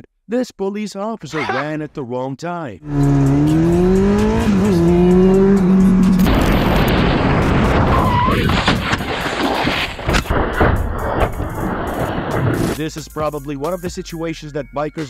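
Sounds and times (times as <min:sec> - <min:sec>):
motorcycle engine revving: 0:02.8 - 0:08.1
wind and road rush: 0:02.9 - 0:12.8
motorcycle crashing knocks and scrapes: 0:06.4 - 0:12.8.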